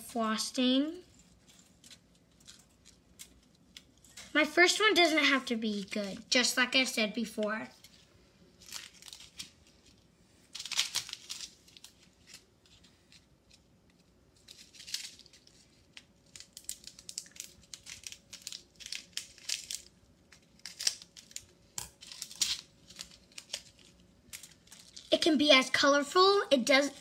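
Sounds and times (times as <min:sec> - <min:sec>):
plastic packets crinkling: 0:01.1 - 0:04.3, 0:08.6 - 0:13.7, 0:14.4 - 0:25.2.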